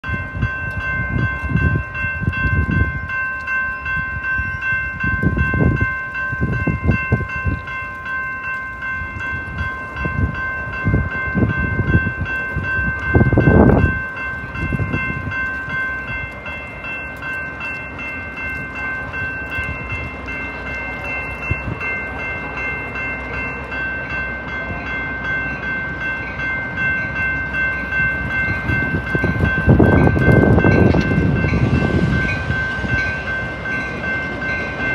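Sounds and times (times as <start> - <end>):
diesel trains passing: 0.0 - 34.9.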